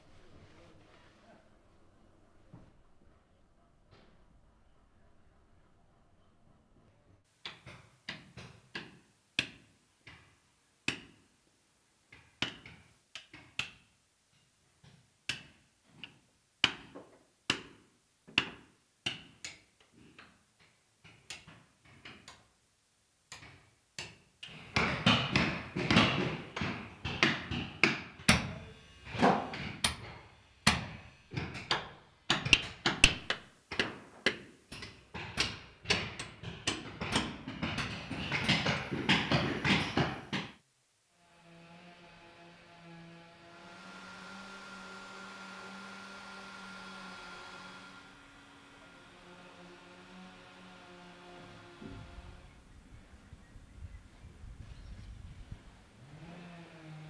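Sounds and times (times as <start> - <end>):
mallet striking caulking iron: 27.1 - 34.4.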